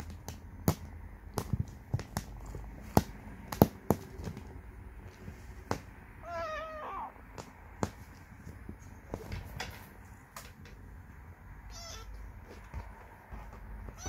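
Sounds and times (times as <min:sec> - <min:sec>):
kitten mewing: 0:06.2 - 0:07.2, 0:11.7 - 0:12.2.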